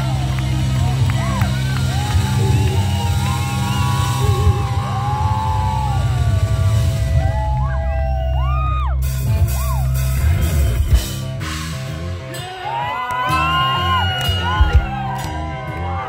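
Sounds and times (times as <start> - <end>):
hard rock band playing: 0.0 - 16.0
bending guitar notes: 8.6 - 16.0.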